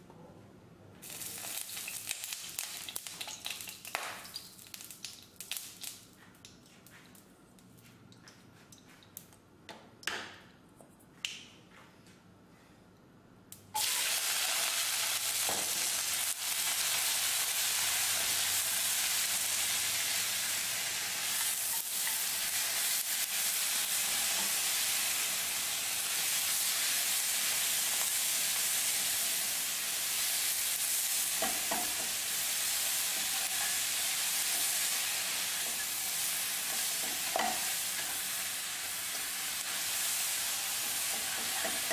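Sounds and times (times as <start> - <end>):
vegetables sizzling in hot oil: 1.0 - 5.8, 13.8 - 41.9.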